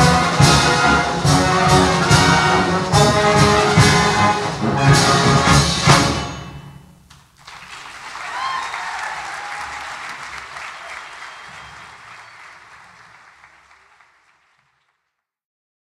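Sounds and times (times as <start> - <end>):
audience applause: 7.2 - 15.2.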